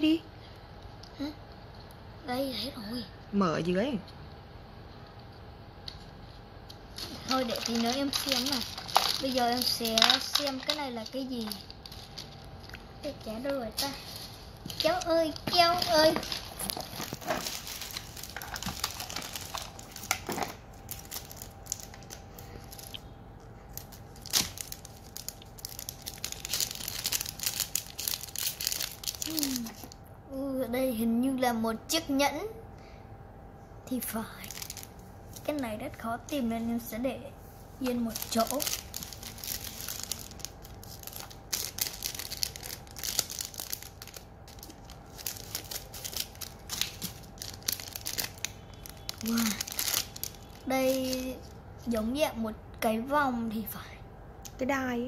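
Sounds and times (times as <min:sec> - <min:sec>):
plastic foil wrapper crinkling: 0:06.7 - 0:23.0, 0:23.7 - 0:30.0, 0:34.2 - 0:35.8, 0:37.8 - 0:51.5.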